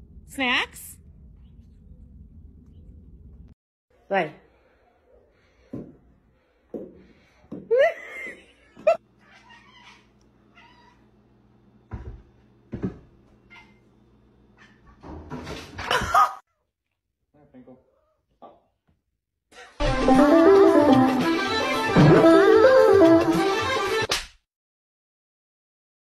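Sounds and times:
cat meowing: 9.2 - 11.0.

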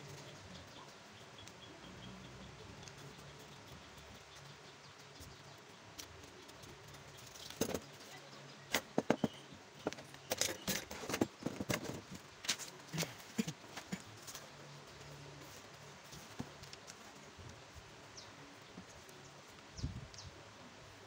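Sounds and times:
paper and materials handled on workbench: 5.9 - 14.5.

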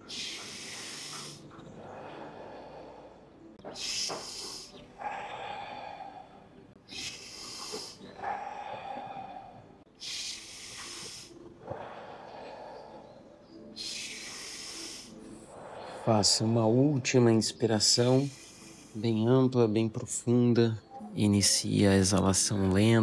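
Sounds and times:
person breathing deeply: 0.0 - 17.1, 17.9 - 19.1.

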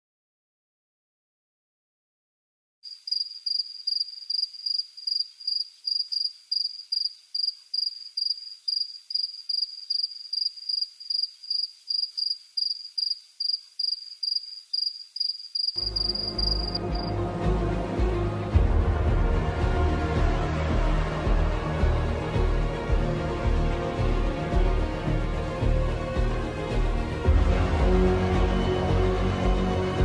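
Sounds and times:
cricket chirping: 2.8 - 17.1
music: 15.8 - 30.0.

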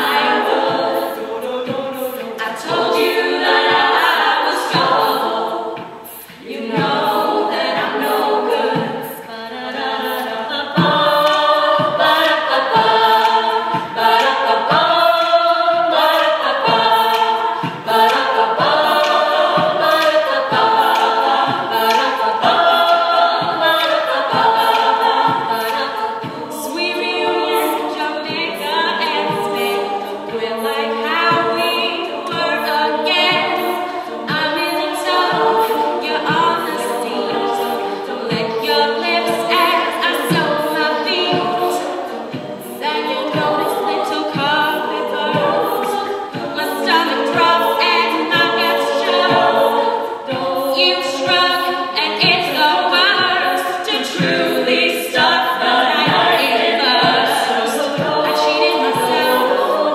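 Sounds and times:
vocal percussion beat: 0.0 - 59.9.

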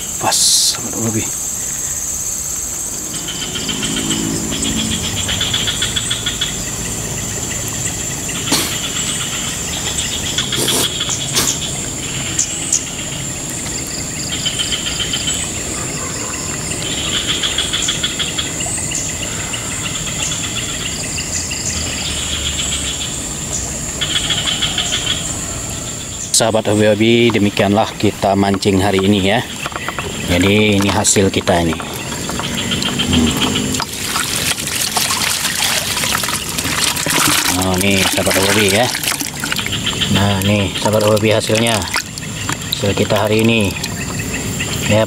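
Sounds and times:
insects droning whine: 0.0 - 45.0
rapid pulsed chirping: 28.1 - 45.0.

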